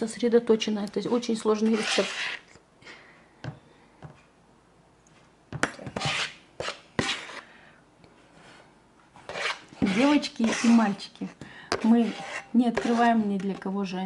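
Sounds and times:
metal cup scraping flour: 1.1 - 2.5, 6.0 - 7.5, 9.3 - 11.1, 11.7 - 13.7.

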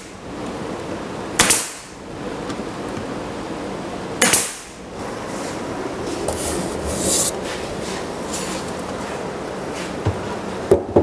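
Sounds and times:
pneumatic stapler shots: 1.4 - 2.0, 4.2 - 4.8.

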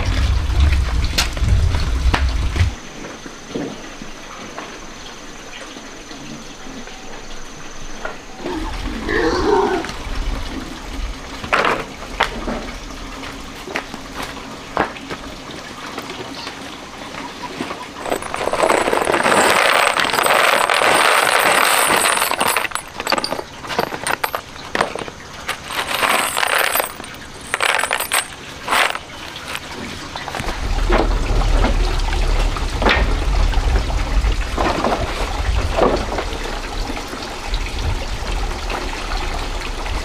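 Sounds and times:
grains pouring into basket: 18.0 - 30.5
bag and basket rustling: 18.0 - 30.6
grains pattering: 18.0 - 30.6.

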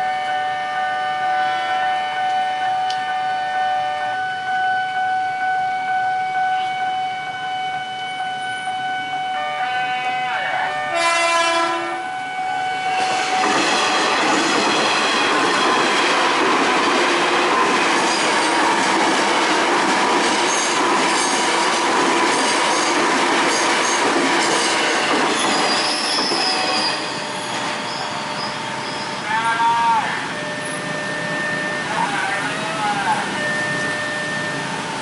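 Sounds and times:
train passing at speed: 8.6 - 35.0.

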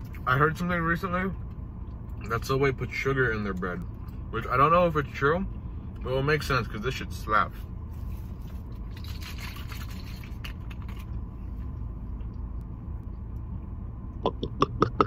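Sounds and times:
car low rumble: 0.0 - 15.0
soft rustle: 7.6 - 12.4
person gulping juice: 14.2 - 15.0.

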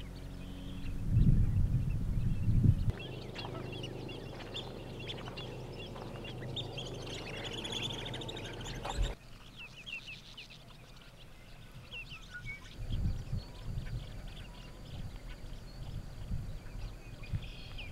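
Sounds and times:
low rumble: 0.0 - 9.2
flock of birds calling: 2.9 - 9.2.

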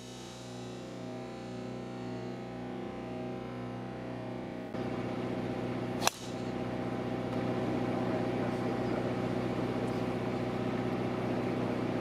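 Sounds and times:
low mechanical hum: 0.0 - 12.0
golf club striking ball: 6.0 - 6.6.

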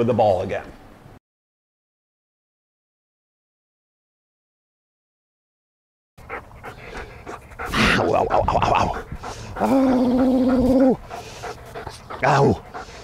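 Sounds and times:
dog panting and growling: 6.2 - 13.0
held voice sound: 7.7 - 11.0
man giving a command: 12.2 - 12.6.

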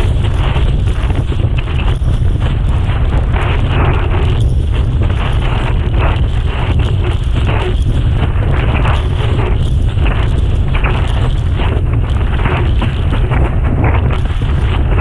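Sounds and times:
choppy water slapping board: 0.0 - 15.0
wind rumble on microphone: 0.0 - 15.0.

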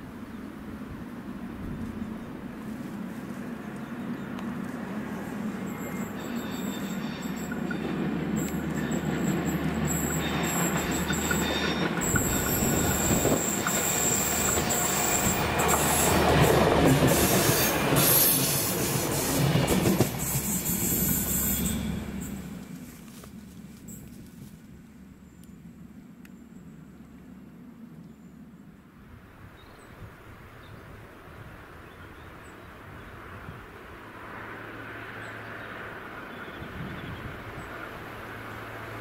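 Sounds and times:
train engine hum: 0.0 - 39.0
train wheel noise: 1.4 - 25.1
high wheel squeal: 5.6 - 22.6.

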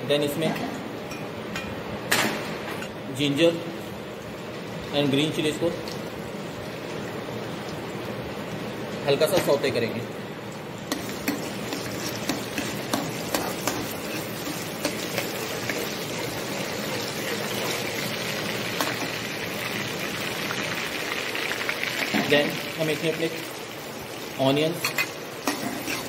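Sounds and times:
food sizzling in hot oil: 10.4 - 26.0.

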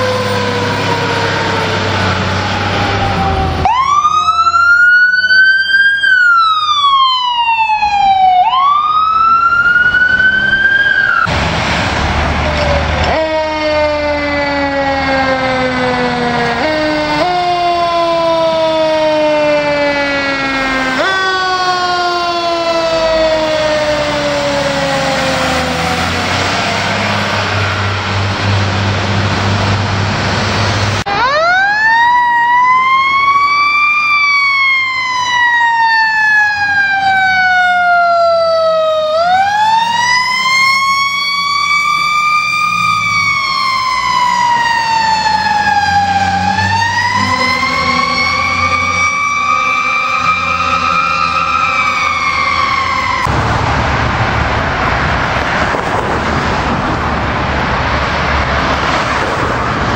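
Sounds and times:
engine noise: 0.0 - 59.9
fire engine siren wailing: 0.0 - 59.9
passing traffic: 0.0 - 59.9.

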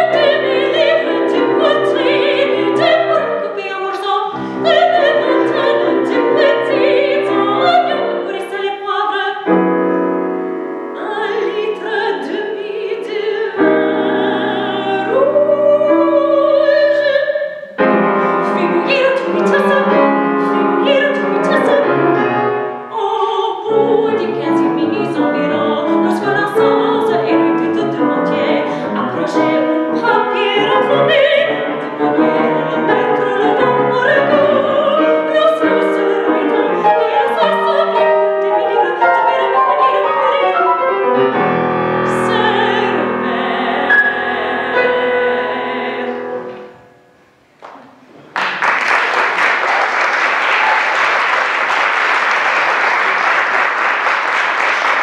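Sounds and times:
soprano singing: 0.0 - 47.2
grand piano: 0.0 - 55.0
audience applauding: 47.6 - 55.0.

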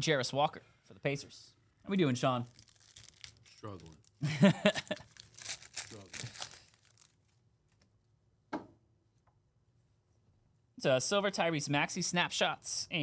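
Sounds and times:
foil wrapper tearing and crinkling: 2.5 - 4.2, 4.8 - 7.3.

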